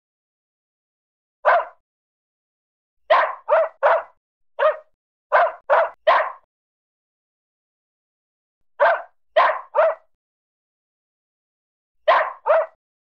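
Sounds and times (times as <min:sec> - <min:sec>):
dog barking: 0:01.4 - 0:01.8, 0:03.1 - 0:06.5, 0:08.8 - 0:10.2, 0:12.0 - 0:12.8.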